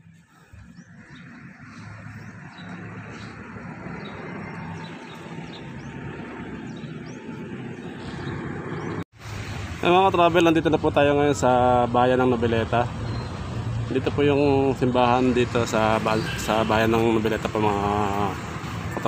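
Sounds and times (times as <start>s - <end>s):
vehicle engine running: 0.0s - 9.0s.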